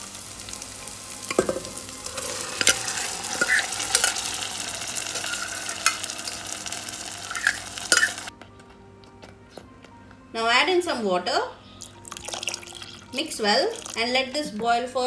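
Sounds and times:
food sizzling in oil: 0.0s - 8.3s, 11.9s - 14.1s.

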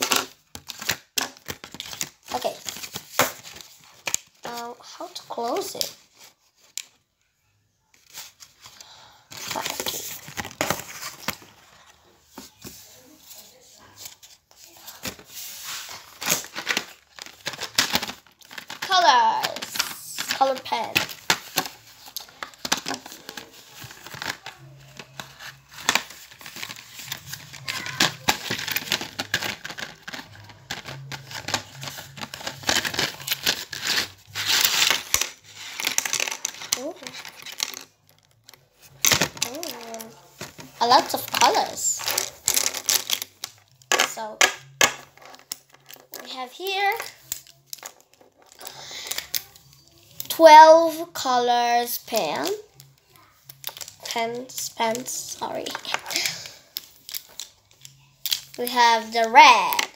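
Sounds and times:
packaging crinkling: 14.1s - 44.0s, 52.7s - 59.9s.

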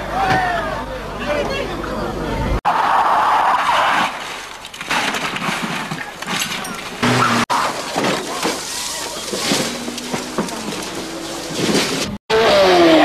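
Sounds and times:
car crashing into bushes: 3.6s - 12.2s
rally car engine: 7.0s - 13.0s.

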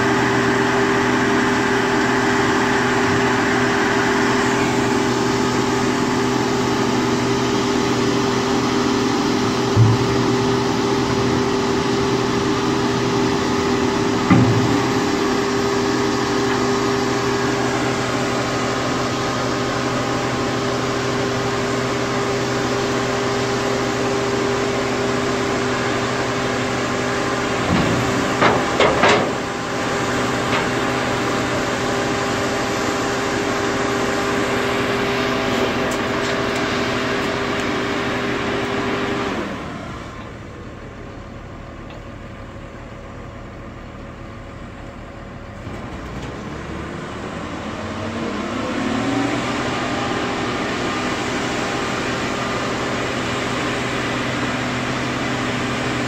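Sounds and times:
baler engine and hydraulics humming: 0.0s - 56.0s
metal clanks: 27.6s - 29.6s.

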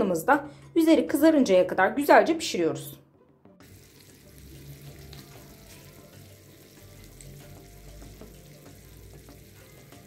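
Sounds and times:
food sizzling and crackling: 3.6s - 10.0s.

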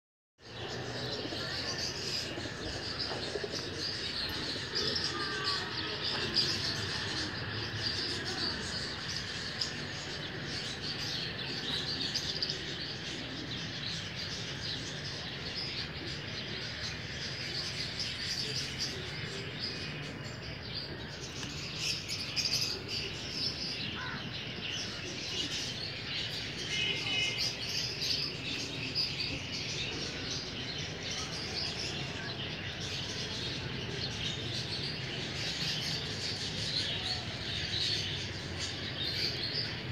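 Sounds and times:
small birds chirping: 0.4s - 16.0s.

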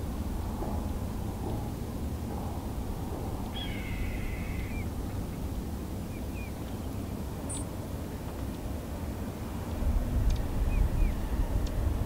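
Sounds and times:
steady low rumble: 0.0s - 7.6s, 8.7s - 12.0s
faint bird chirps: 3.5s - 4.9s
bird raspy call: 3.6s - 4.9s.

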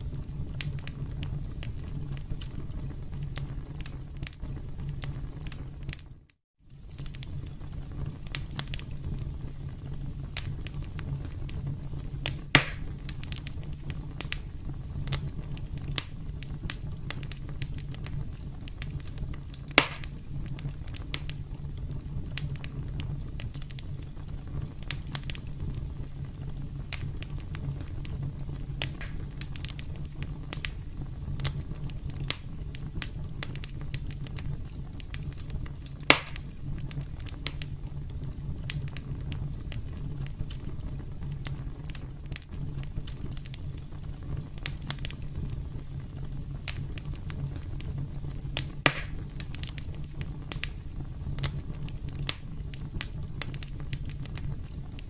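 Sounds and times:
campfire crackling: 0.0s - 55.0s
sharp loud fire pops: 12.2s - 13.0s, 19.7s - 20.2s, 28.8s - 29.5s, 36.1s - 36.6s, 48.8s - 49.3s.

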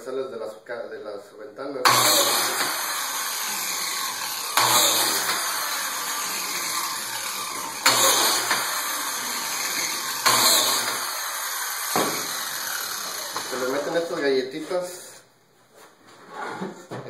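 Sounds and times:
biscuit joiner cutting wood: 1.9s - 14.2s.

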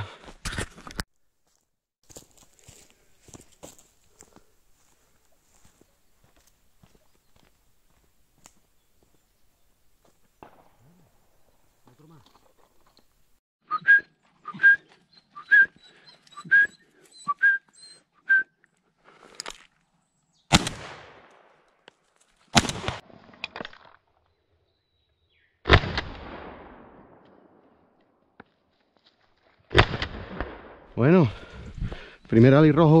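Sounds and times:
short whistled notes: 13.7s - 18.6s
shotgun shots with echo: 20.5s - 21.3s, 22.6s - 23.0s, 29.7s - 30.9s.

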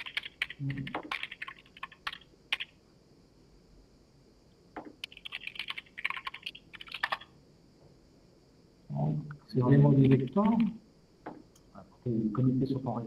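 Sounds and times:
keyboard typing: 0.0s - 2.8s, 4.8s - 7.3s, 9.9s - 11.4s.

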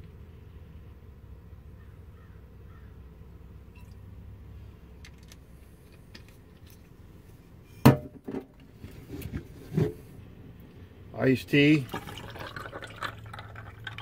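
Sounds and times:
bottles clunking: 11.8s - 14.0s.

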